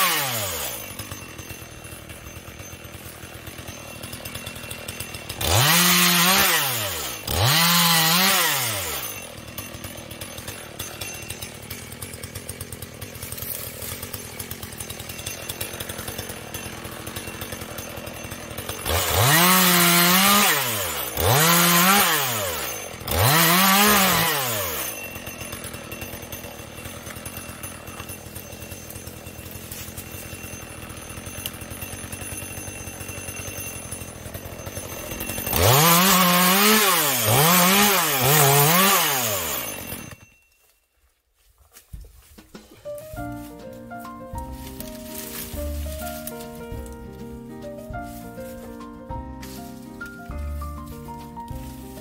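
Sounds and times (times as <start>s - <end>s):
chainsaw idling and revving: 0.0s - 40.3s, 43.1s - 52.0s.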